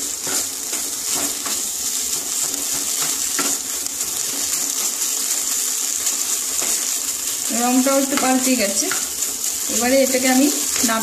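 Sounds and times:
wooden spatula scraping pan: 0.0 - 5.0
sizzling hiss: 0.0 - 11.0.

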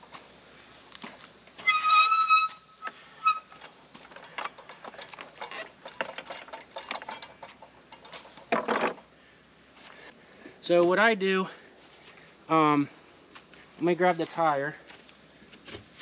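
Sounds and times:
tire changer clicking and scraping: 1.0 - 8.8
high squeal: 1.6 - 3.6.

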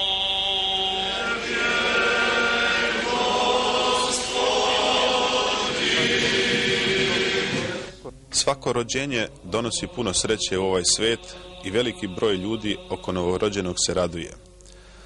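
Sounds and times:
choir chanting in long held notes: 0.0 - 8.0, 9.6 - 14.0
man chanting a litany: 8.6 - 14.5.

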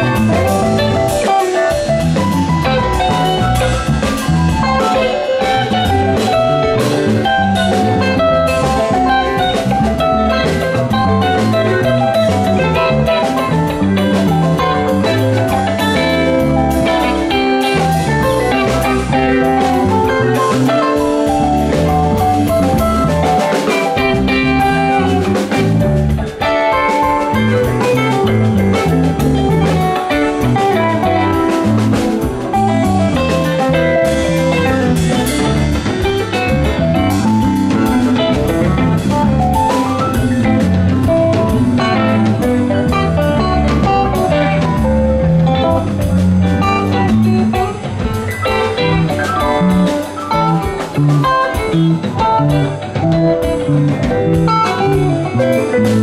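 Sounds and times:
drum kit: 0.0 - 56.0
electric bass: 0.0 - 56.0
electric guitar: 0.0 - 56.0.

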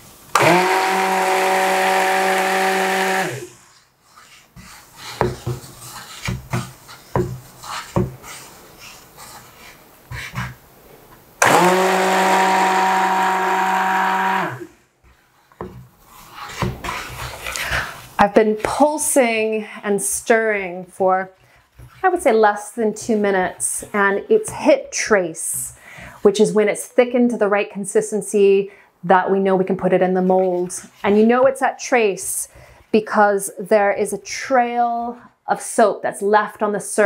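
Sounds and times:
stick blender motor whine: 0.3 - 3.7, 11.4 - 14.7
blender knocking and scraping pan: 0.3 - 3.8, 4.5 - 8.4, 11.4 - 17.9.

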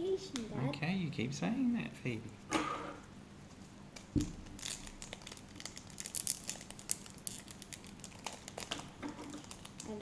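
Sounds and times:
foil pack crackling: 4.4 - 10.0.

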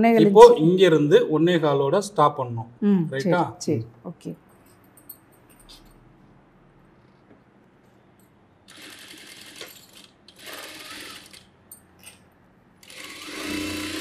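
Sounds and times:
sewing machine stitching: 8.7 - 11.5, 12.8 - 14.0.

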